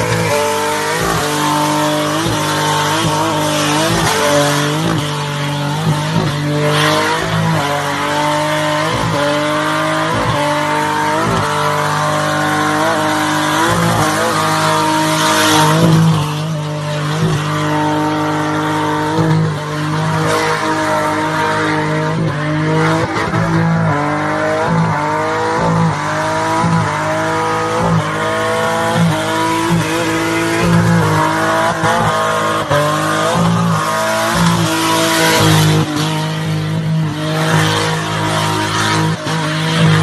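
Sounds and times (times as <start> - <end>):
car engine revving: 0.0 - 40.0.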